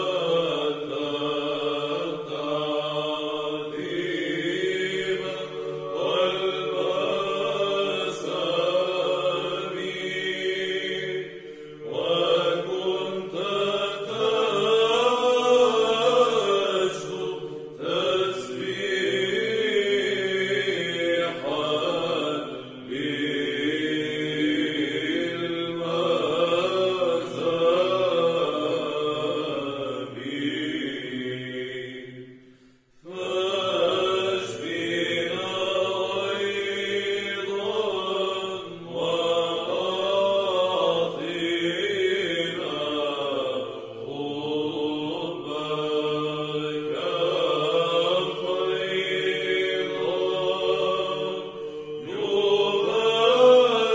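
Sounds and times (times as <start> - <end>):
men chanting a melody: 33.1 - 53.9.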